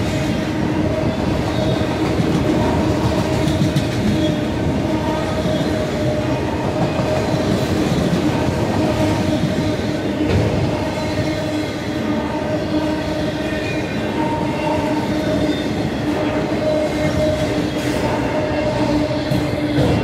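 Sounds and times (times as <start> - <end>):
freight train rumbling past: 0.0 - 20.0.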